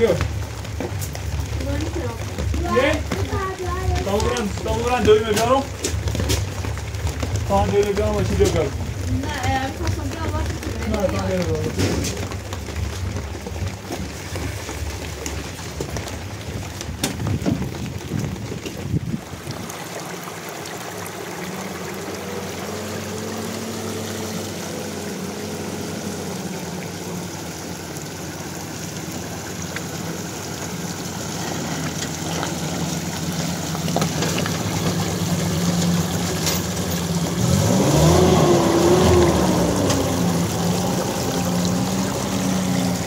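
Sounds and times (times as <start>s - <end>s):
water rushing down gutter: 0.0s - 43.0s
pickup truck engine revving: 29.1s - 43.0s.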